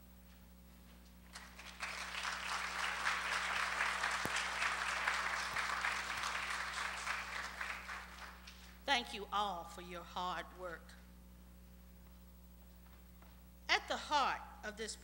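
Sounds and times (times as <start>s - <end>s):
audience applauding: 1.3s - 8.8s.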